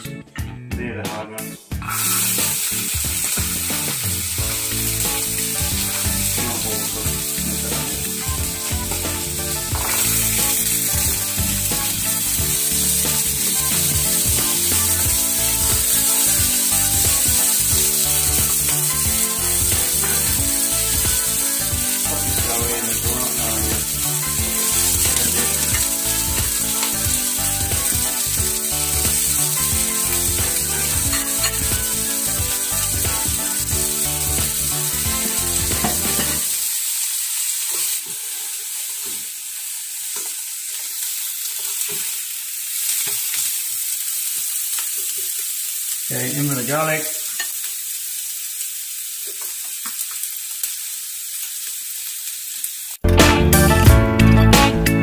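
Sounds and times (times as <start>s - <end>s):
beans sizzling in a wok: 1.9s - 53.8s
spatula scraping a pan: 24.0s - 33.3s.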